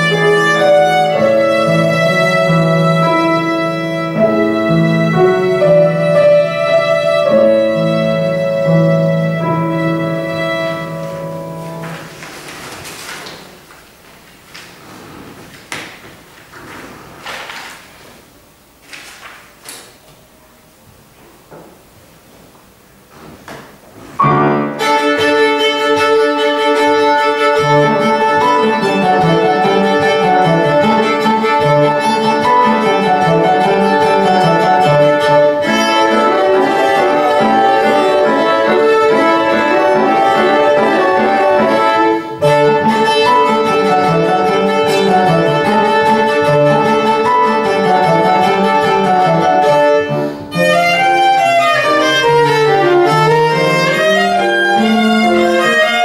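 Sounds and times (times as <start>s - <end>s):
viola playing: 0.0s - 12.3s, 24.2s - 56.0s
piano accompaniment: 0.0s - 18.8s, 19.5s - 56.0s.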